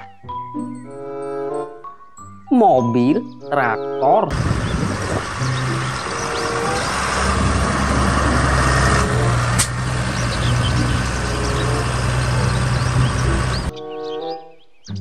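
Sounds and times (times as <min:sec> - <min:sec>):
tractor diesel engine running: 0:04.3 - 0:13.7.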